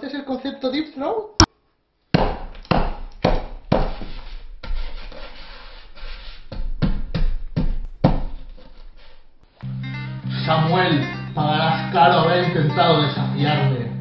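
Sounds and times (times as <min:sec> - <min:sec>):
fist pounding a tabletop: 0:02.1 - 0:04.1, 0:06.6 - 0:08.5.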